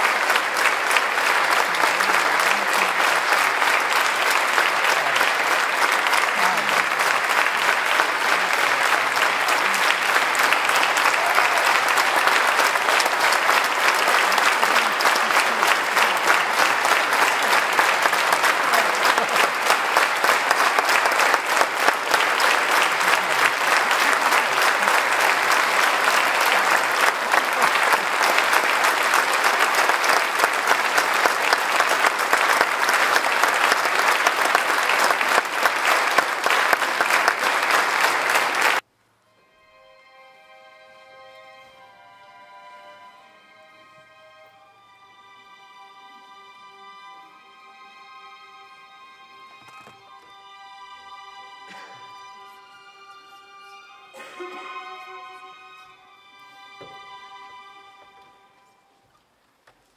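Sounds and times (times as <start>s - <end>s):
large audience applauding: 0.0s - 38.9s, 51.4s - 58.6s.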